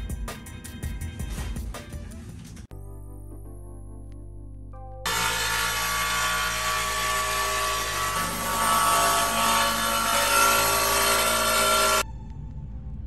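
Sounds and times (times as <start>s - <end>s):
angle grinder grinding tile: 5.1s - 12.0s.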